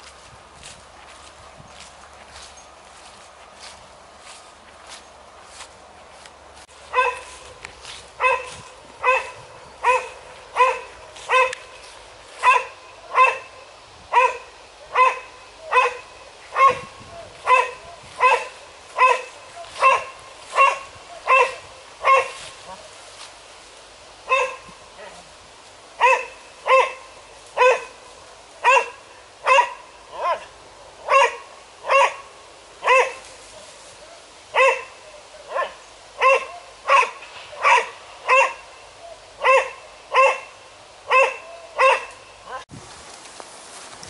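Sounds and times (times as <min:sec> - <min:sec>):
dog barking sharply: 0:06.9 - 0:07.2, 0:08.2 - 0:11.6, 0:12.4 - 0:13.5, 0:17.5 - 0:22.4, 0:26.0 - 0:27.0, 0:27.6 - 0:27.9, 0:28.6 - 0:30.5, 0:31.1 - 0:32.2, 0:34.6 - 0:34.9, 0:35.6 - 0:38.6, 0:39.4 - 0:40.5, 0:41.1 - 0:42.1.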